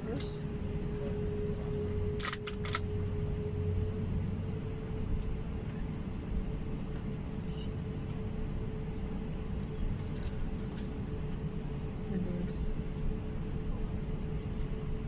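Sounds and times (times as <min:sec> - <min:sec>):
cabin ventilation hum: 0:00.0 - 0:15.0
faint steady tone: 0:00.1 - 0:09.3.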